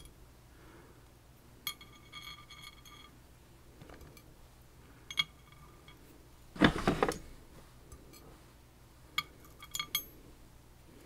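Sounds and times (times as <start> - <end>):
metal lock parts clinking: 9.2 - 10.1.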